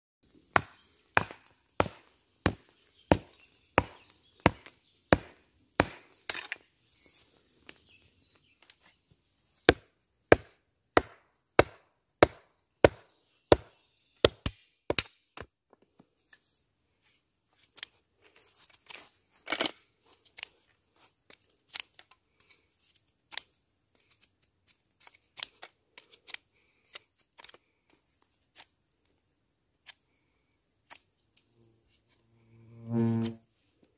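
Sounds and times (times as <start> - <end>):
blade chopping into wood: 0.5 - 6.6, 9.7 - 15.2.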